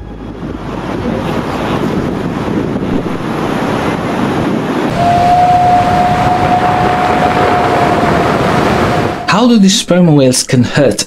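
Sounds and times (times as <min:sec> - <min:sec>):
ocean surf: 0:00.0 - 0:09.9
wind: 0:00.0 - 0:11.0
steady high tone: 0:04.9 - 0:09.7.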